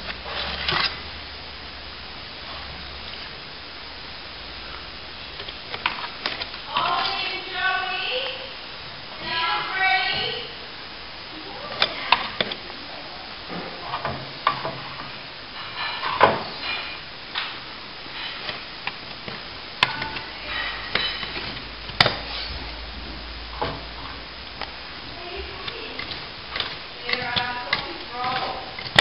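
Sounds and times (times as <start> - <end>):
scraping and brushing wet plaster: 0.0 - 1.0, 18.1 - 22.7.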